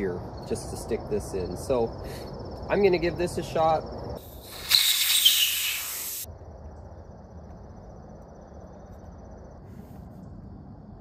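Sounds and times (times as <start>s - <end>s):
insect chirr: 0.0s - 11.0s
air hissing from tire valve: 4.2s - 6.3s.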